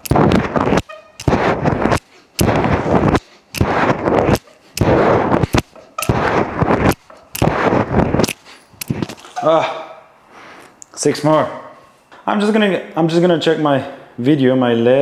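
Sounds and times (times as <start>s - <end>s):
sharp clicks: 0.0s - 9.2s
pull-up noisy bursts: 0.0s - 9.6s.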